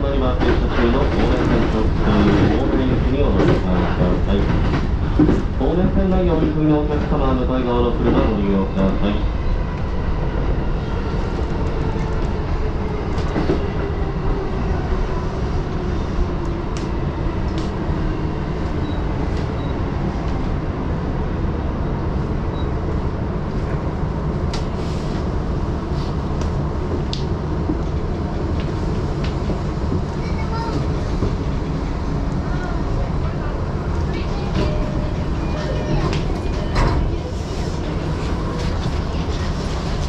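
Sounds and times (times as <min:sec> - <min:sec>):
train wheels rumbling on rail: 0:00.0 - 0:40.0
rail clicks: 0:00.1 - 0:07.2.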